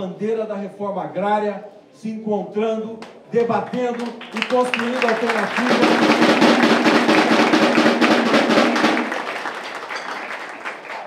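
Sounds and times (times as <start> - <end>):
drum roll: 5.1 - 10.2.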